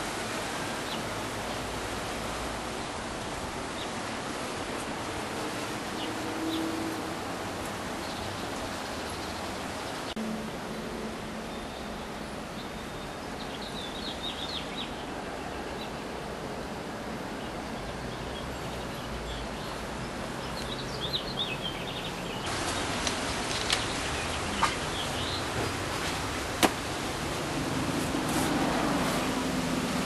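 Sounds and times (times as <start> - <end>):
outdoor background hiss: 0.0 - 30.0
small birds chirping: 17.4 - 25.8.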